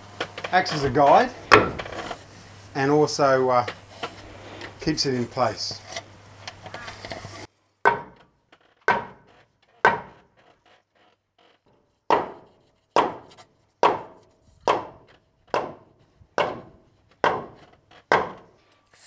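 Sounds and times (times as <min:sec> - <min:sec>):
mallet striking wooden log: 0:07.9 - 0:08.2, 0:08.9 - 0:09.2, 0:09.9 - 0:10.2.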